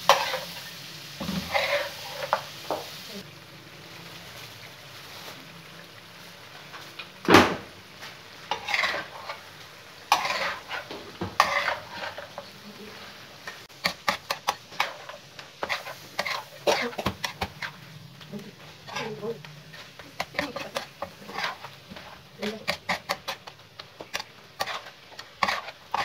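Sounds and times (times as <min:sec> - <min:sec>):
metal spatula scraping a pan: 0:00.0 - 0:02.9, 0:08.4 - 0:26.0
meat sizzling in oil: 0:00.0 - 0:26.0.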